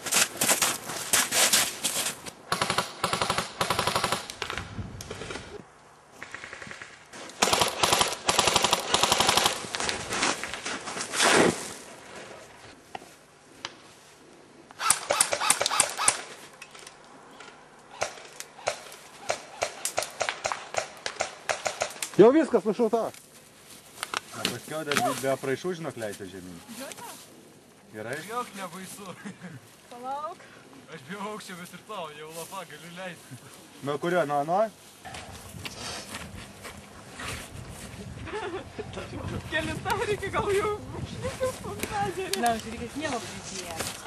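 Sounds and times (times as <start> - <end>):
airsoft guns firing full auto: 2.5 - 4.6, 6.2 - 9.7, 18.0 - 22.0.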